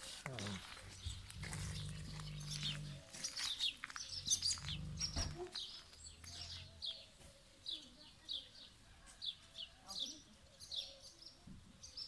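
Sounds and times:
small birds chirping: 0.2 - 12.0
dog growling: 1.1 - 3.2, 4.2 - 5.6.

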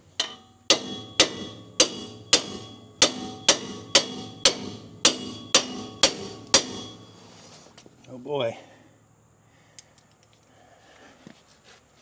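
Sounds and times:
hammer blows on steel: 0.2 - 7.2.

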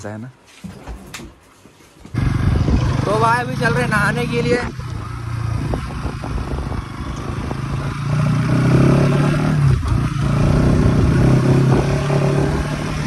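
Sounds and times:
motorcycle engine revving: 2.1 - 13.0.

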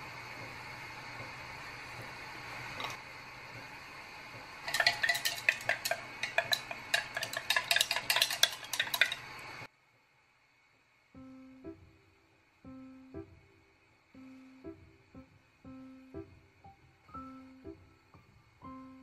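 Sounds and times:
steady low hum: 0.0 - 19.0
metal utensil clinking on dish: 4.7 - 9.4.

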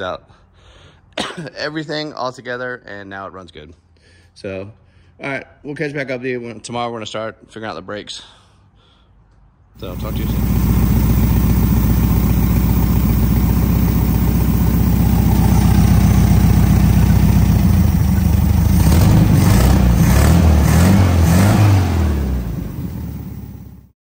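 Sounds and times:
car engine idling and revving: 9.8 - 23.9.

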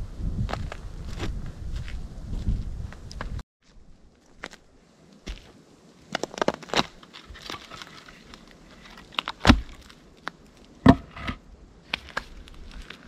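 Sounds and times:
crackling clicks and crunches: 5.3 - 10.8, 11.8 - 13.0
heavy wooden thuds: 10.8 - 11.4.

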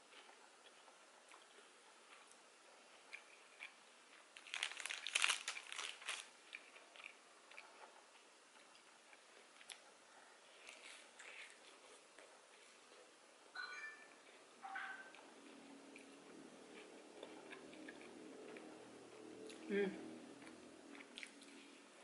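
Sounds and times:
crunchy crackles of chewing: 0.0 - 13.2, 15.1 - 22.0
chewing with wet clicks: 0.1 - 4.3, 15.0 - 19.7, 20.4 - 21.7.

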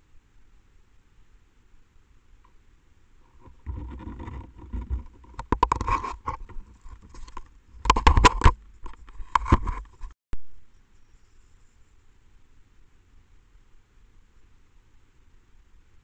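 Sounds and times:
close scratching and rustling: 3.2 - 10.2.

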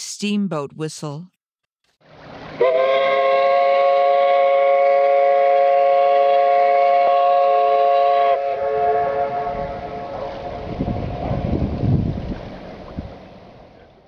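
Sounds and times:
steamboat whistle blast: 2.6 - 10.7.

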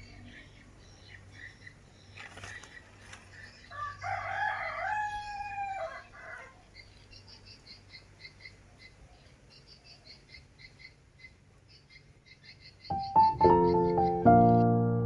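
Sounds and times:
rooster crowing: 3.7 - 6.6.

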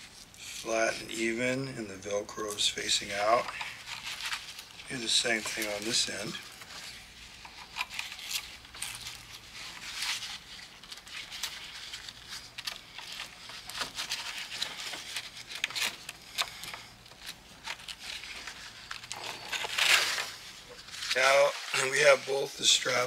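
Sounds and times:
nylon strap rustling and crinkling: 2.5 - 23.0.

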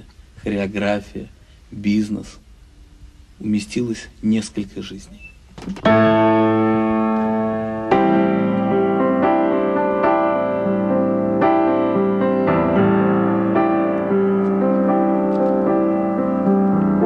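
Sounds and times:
piano chords: 5.8 - 17.0.

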